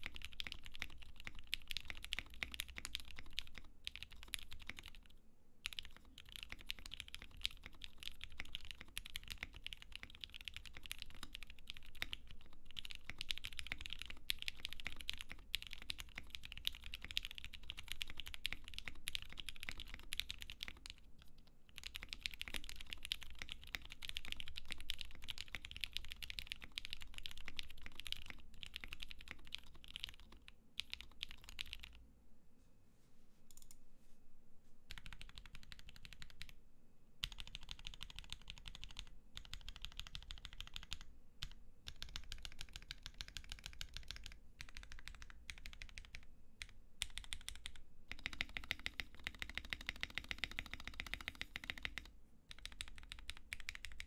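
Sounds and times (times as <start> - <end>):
mechanical keyboard typing: 0.0 - 32.0, 34.9 - 36.6, 37.2 - 54.0.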